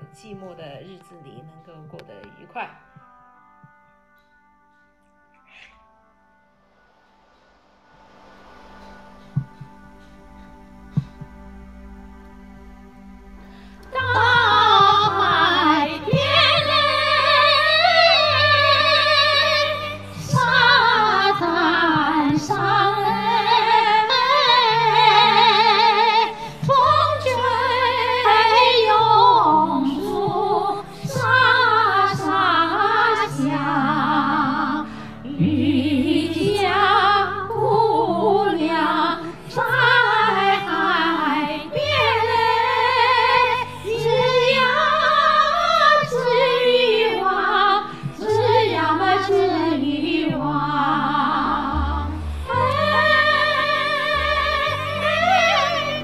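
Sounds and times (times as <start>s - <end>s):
sustained low accompaniment: 0.0s - 56.0s
two women singing operatic duet: 13.8s - 56.0s.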